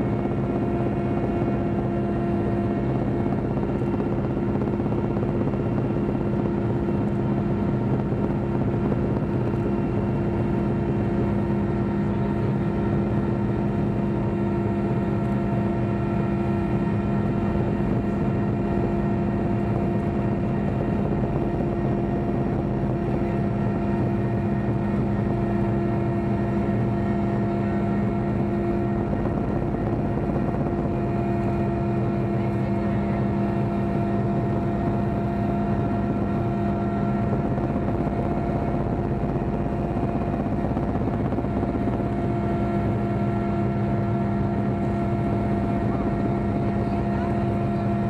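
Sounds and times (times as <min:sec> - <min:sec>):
helicopter engine and rotor drone: 0:00.0 - 0:48.0.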